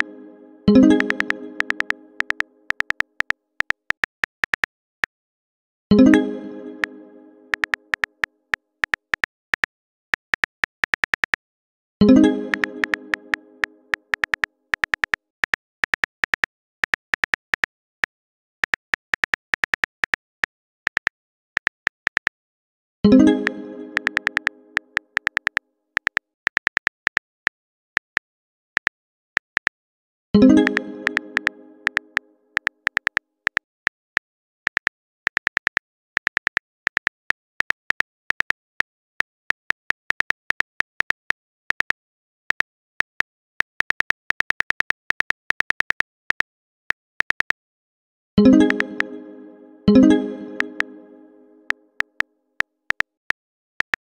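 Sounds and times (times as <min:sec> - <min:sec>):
phone keyboard typing clicks: 0:00.7 - 0:04.7, 0:07.5 - 0:11.4, 0:12.5 - 0:13.2, 0:13.9 - 0:17.7, 0:20.9 - 0:22.4, 0:24.0 - 0:27.2, 0:30.6 - 0:34.0, 0:34.7 - 0:38.6, 0:39.5 - 0:47.6
message chime: 0:48.4 - 0:51.7.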